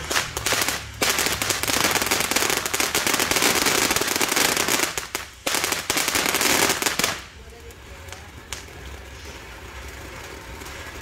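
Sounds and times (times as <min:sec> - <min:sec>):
firework fountain crackling: 0:00.0 - 0:11.0.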